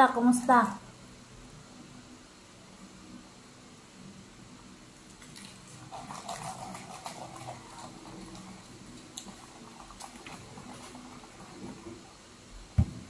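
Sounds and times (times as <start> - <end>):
slurping through a straw: 5.3 - 12.1.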